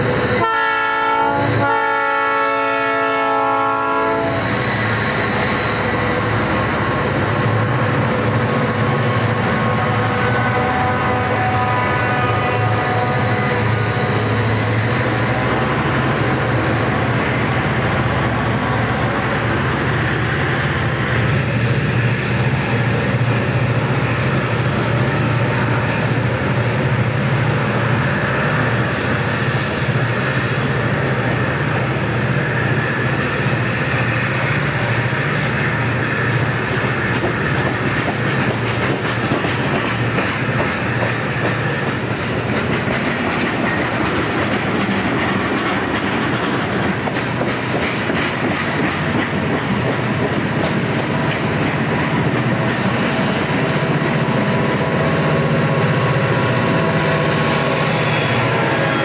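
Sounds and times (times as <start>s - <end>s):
diesel locomotive drone: 0.0s - 59.0s
train wheels clacking on rails: 4.1s - 59.0s.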